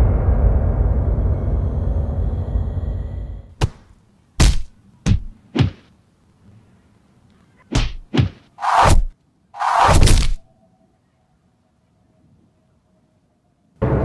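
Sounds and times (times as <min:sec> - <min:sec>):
heavy thuds: 0:03.5 - 0:05.9, 0:07.7 - 0:10.4
punch and kick hits: 0:03.6 - 0:05.9, 0:07.7 - 0:10.4.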